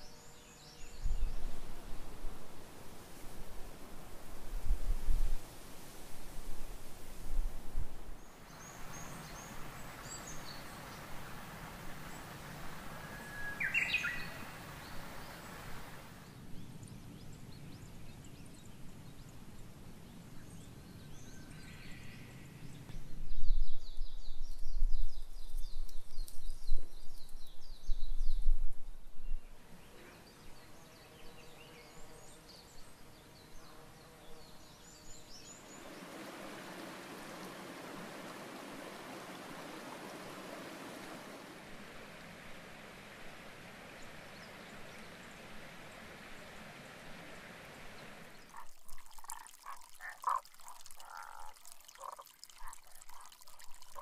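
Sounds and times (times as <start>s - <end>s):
steady even hiss: 0.0s - 16.4s, 29.5s - 54.0s
bird call: 12.9s - 15.7s.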